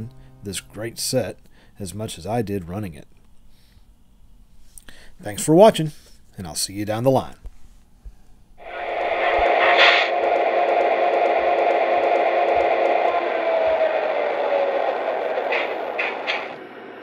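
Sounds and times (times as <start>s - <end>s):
model locomotive diesel engine sound: 8.6s - 17.0s.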